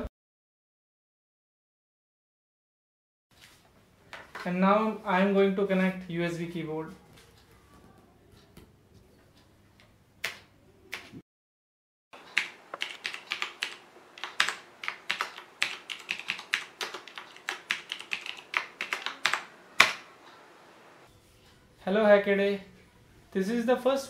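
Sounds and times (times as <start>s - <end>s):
keyboard typing: 12.2s - 20.6s.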